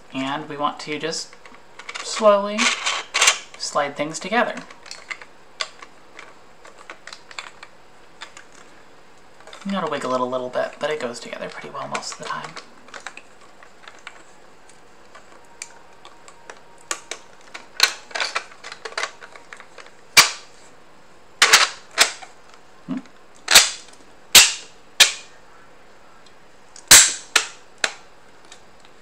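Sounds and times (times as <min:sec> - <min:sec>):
plastic parts clacking: 0:01.3 - 0:08.7, 0:09.4 - 0:20.5, 0:21.4 - 0:22.6.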